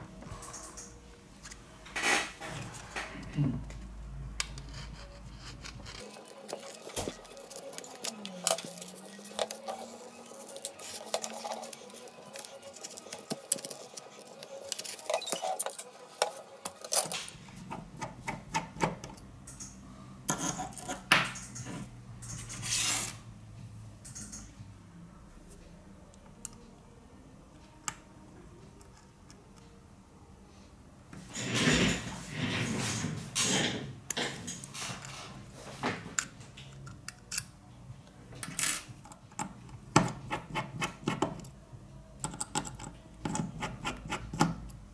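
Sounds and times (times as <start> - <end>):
tool scraping: 4.4 - 18.7, 20.3 - 23.2, 31.3 - 35.8
screwdriver clicking on metal: 42.2 - 44.6.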